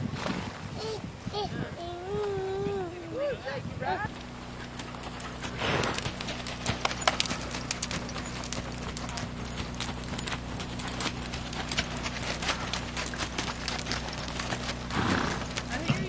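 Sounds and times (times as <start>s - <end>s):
hoofbeats on dirt: 3.8s - 16.0s
low hum: 4.1s - 16.0s.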